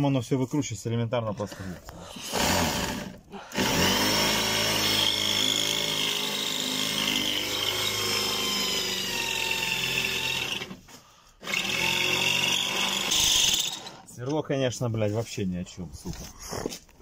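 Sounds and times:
electric drill whining: 2.2 - 14.1.

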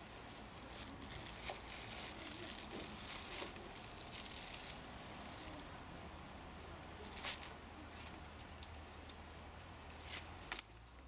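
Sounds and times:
plastic wrap crinkling: 0.0 - 5.7.

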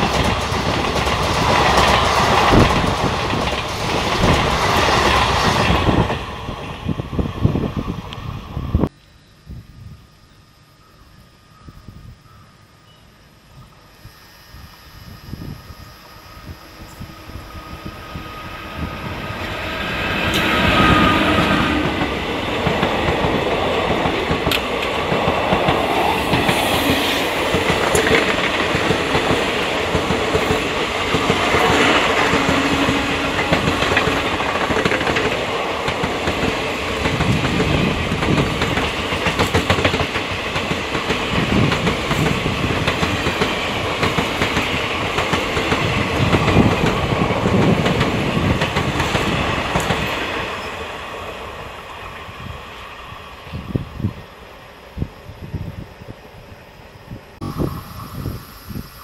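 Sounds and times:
clickety-clack over rail joints: 0.0 - 6.3, 21.3 - 50.4
electric locomotive passing: 0.0 - 8.9, 11.1 - 59.0
train wheels rumbling on rails: 0.0 - 8.9, 16.1 - 58.9.

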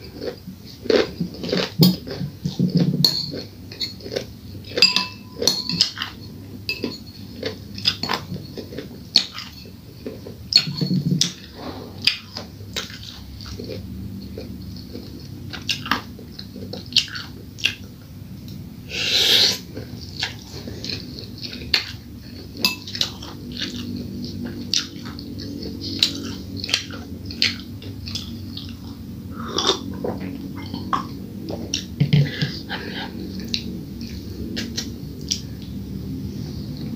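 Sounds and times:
spoon clinking against bowl: 4.8 - 7.3, 22.6 - 23.1
chewing noodles: 5.7 - 18.0, 18.9 - 35.8.

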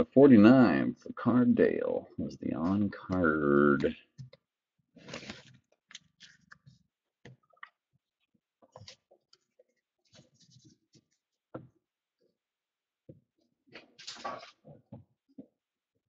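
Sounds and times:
cards rustling and clicking: 5.0 - 6.7.

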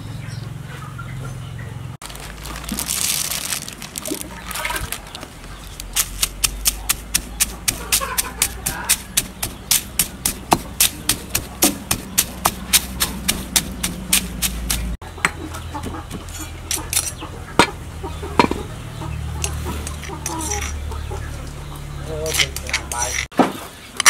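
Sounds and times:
stone pestle pounding in mortar: 6.0 - 17.8.

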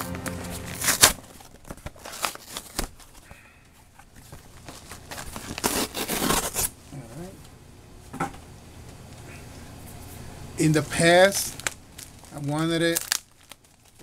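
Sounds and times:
sharp loud noise: 0.0 - 1.7
packing paper rustling: 0.1 - 3.3, 4.1 - 6.7, 11.0 - 14.0.

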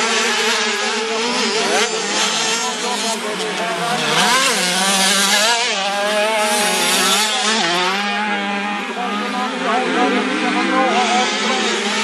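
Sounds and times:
motocross bikes revving: 0.0 - 12.0.

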